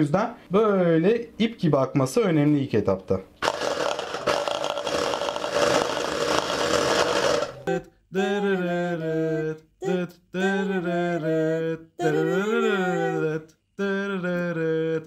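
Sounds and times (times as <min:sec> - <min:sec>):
electric hand mixer whisking: 0:03.4 - 0:07.7
person singing long notes: 0:07.6 - 0:15.0.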